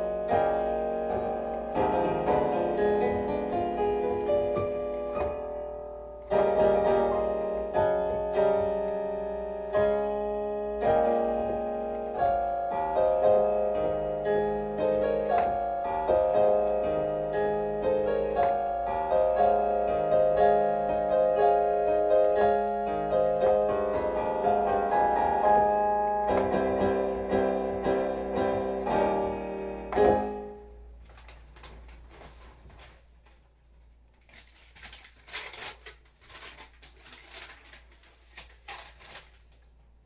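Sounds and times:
digital piano playing: 0:00.0 - 0:31.0
paper rustling: 0:31.0 - 0:39.8.

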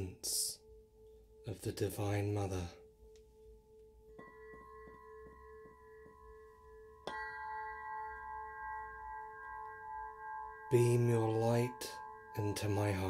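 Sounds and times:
crystal pyramid ringing: 0:00.0 - 0:13.0.

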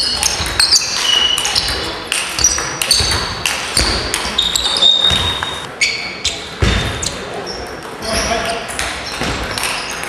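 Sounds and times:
shoes squeaking on floor: 0:00.0 - 0:10.0.

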